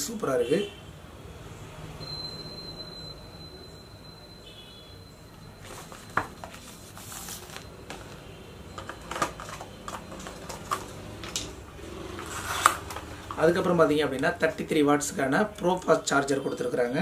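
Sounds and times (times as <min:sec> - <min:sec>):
cardboard and plastic rustling: 0:05.6 - 0:13.7.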